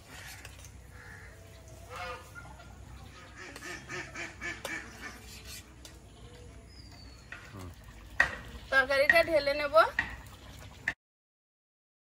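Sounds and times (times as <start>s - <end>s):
waterfowl calling: 0.0s - 5.6s.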